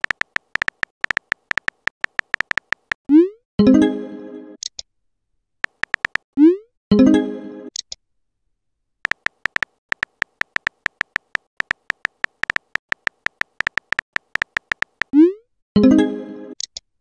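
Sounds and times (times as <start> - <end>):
virtual keyboard tap clicks: 0.0 - 3.0, 5.6 - 6.2, 9.1 - 15.1.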